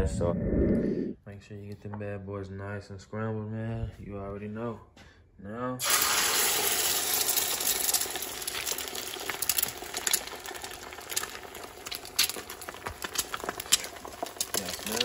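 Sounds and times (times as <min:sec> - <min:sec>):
eggs sizzling in skillet: 0:05.8 - 0:15.0
crackles and pops: 0:06.7 - 0:15.0.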